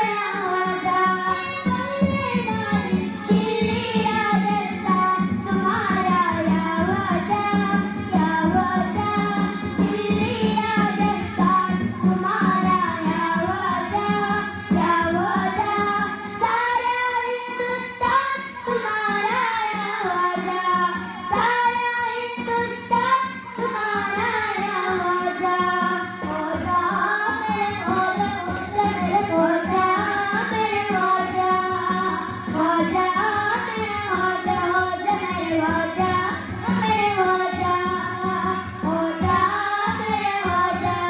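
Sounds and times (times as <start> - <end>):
children singing through microphones: 0.0 - 41.0.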